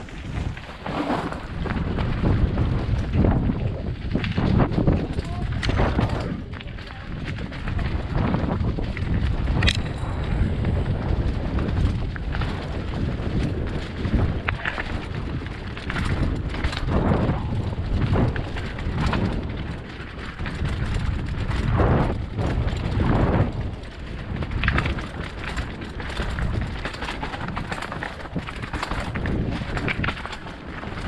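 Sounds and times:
bike rattling over bumps: 0.0s - 31.0s
bike tyres on dirt and rocks: 0.0s - 31.0s
wind buffeting microphone: 0.0s - 31.0s.

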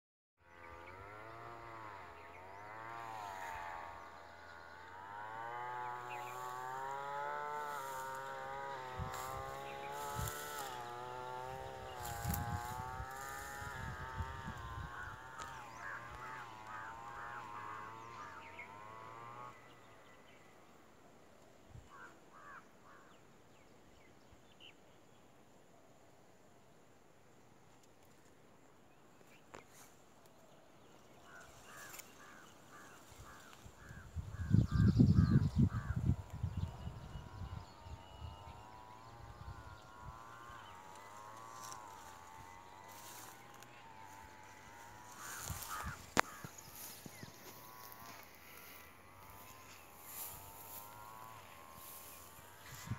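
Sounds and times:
flying insect buzzing: 0.6s - 19.6s, 31.3s - 52.9s.

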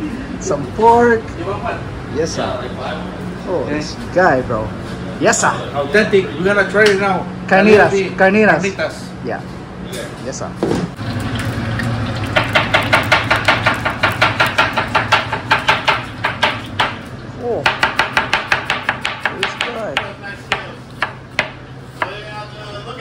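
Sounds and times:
knife chopping on cutting board: 12.4s - 17.0s, 17.6s - 22.1s.

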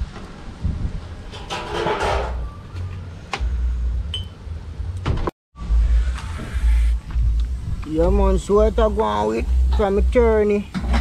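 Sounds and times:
wind buffeting microphone: 0.0s - 1.4s.

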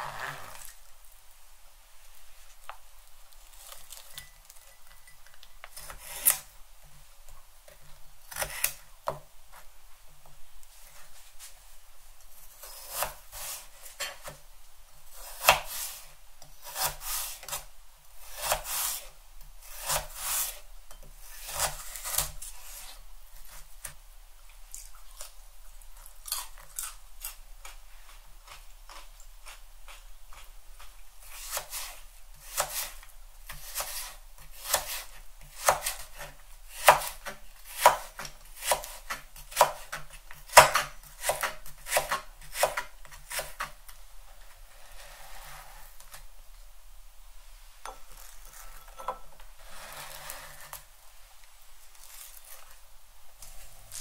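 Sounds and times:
knife slicing carrot on board: 15.2s - 17.7s, 18.3s - 19.1s, 19.7s - 20.6s, 31.3s - 43.8s.

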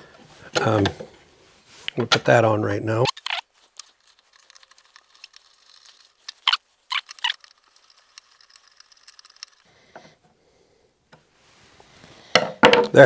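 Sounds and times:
screwdriver clicks and scratching: 3.1s - 9.7s.

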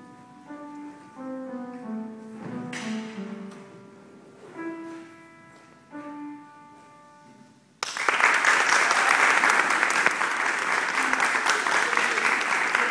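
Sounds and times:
piano notes ringing: 0.0s - 7.8s
audience applause: 7.8s - 12.9s.

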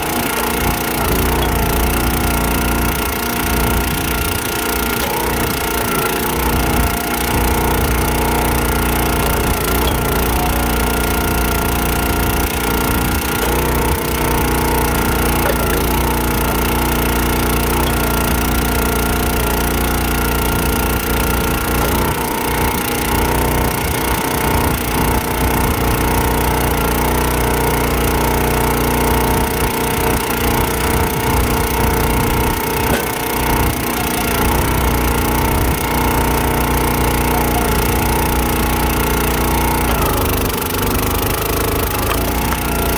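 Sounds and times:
small gas engine running: 0.0s - 42.9s.

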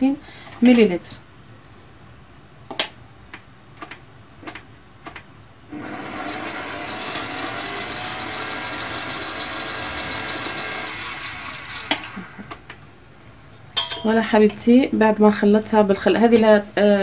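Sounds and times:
stand mixer motor running: 5.7s - 12.6s
metal spoon clinking on steel bowl: 13.8s - 14.7s.

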